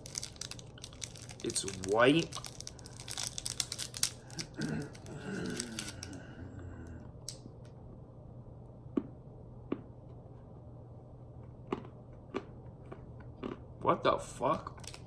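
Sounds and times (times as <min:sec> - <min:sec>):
candy wrapper clicks and crinkles: 0:00.0 - 0:06.2, 0:14.6 - 0:15.0
steady low hum: 0:00.0 - 0:15.0.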